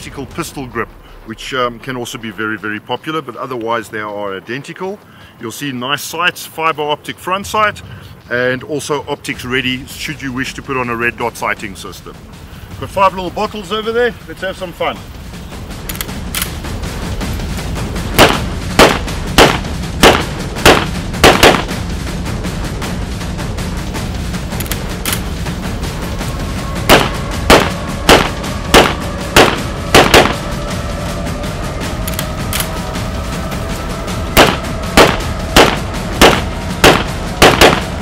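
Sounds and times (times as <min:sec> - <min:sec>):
shotgun shots: 0:18.2 - 0:21.8, 0:26.9 - 0:30.4, 0:34.4 - 0:38.0.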